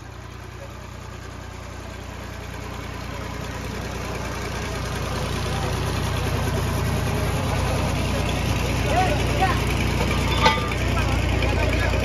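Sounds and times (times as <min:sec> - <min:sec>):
diesel tractor engine running: 0:00.0 - 0:12.0.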